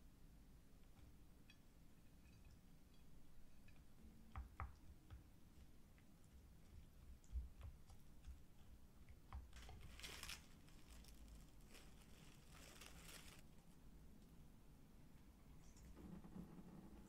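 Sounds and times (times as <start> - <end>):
plastic film crinkling and tearing: 9.5 - 13.5.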